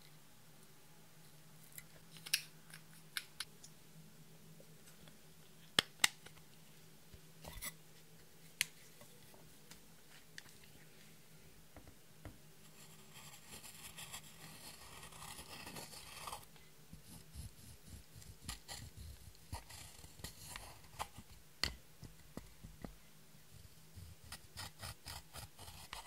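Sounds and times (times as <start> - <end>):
tool scraping eyeshadow: 24.2 - 26.0.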